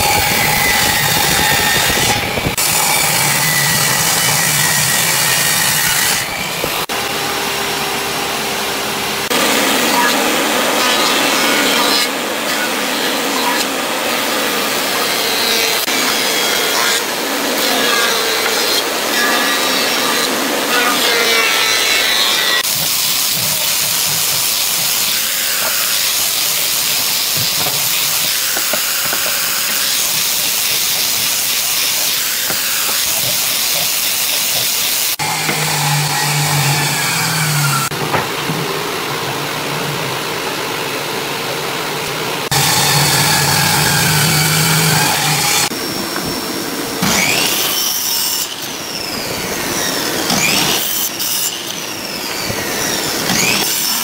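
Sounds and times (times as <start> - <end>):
power tool humming: 0.0 - 38.0, 42.4 - 54.0
thickness planer hissing: 42.4 - 54.0.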